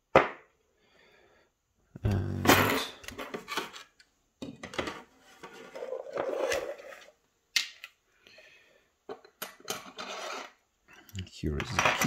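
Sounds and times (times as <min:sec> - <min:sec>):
scraping and rustling: 0:04.8 - 0:07.2, 0:09.7 - 0:10.6.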